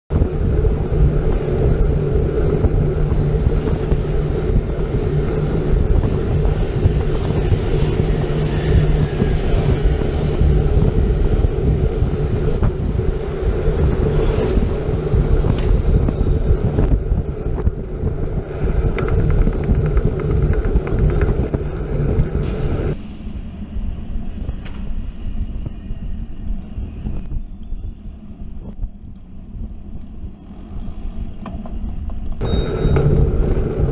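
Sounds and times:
buses and vans passing: 0:00.1 - 0:23.0, 0:32.4 - 0:33.9
city traffic rumble: 0:00.1 - 0:33.9
wind buffeting microphone: 0:00.1 - 0:33.9.

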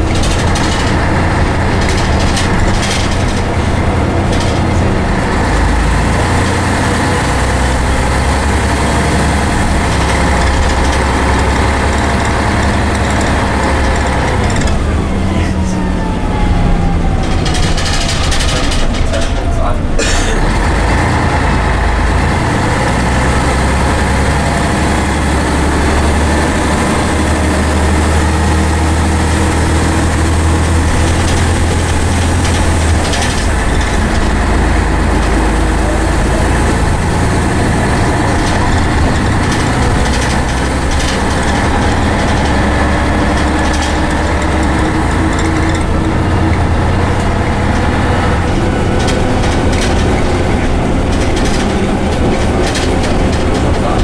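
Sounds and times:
bus diesel engine: 0:00.0 - 0:54.0
road and body noise: 0:00.0 - 0:54.0.

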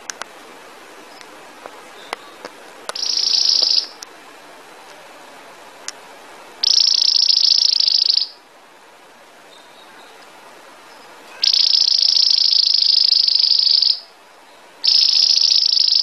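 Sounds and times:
canary singing bell-like trills: 0:03.0 - 0:04.0, 0:06.6 - 0:08.4, 0:10.9 - 0:14.1, 0:14.8 - 0:16.0.

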